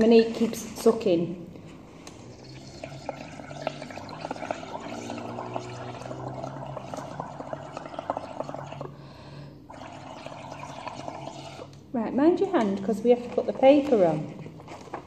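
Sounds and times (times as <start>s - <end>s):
bubbling paint through straw: 2.0s - 11.8s.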